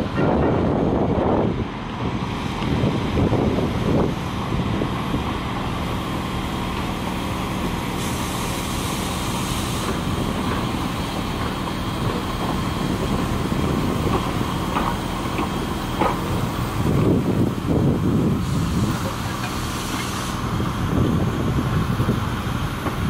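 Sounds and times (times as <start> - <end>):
steam locomotive rumbling: 0.0 - 23.0
steam hissing: 2.2 - 23.0.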